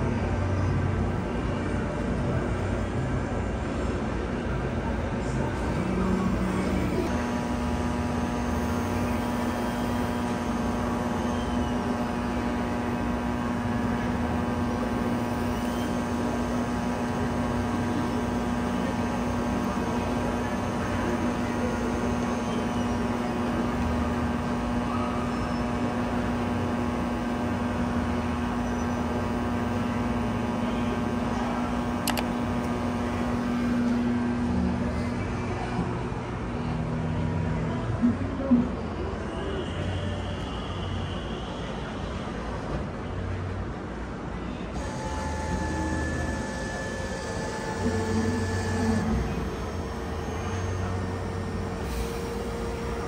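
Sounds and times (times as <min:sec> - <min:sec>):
steady whining tones: 0:00.0 - 0:37.7, 0:44.7 - 0:53.0
vending machine motor humming: 0:00.8 - 0:37.5, 0:44.8 - 0:53.0
sharp click: 0:32.0 - 0:32.3.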